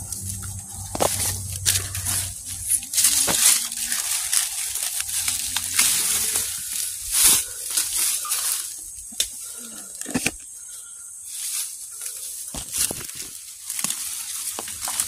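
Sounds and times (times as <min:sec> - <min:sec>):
dry leaves crunching underfoot: 0:00.0 - 0:15.0.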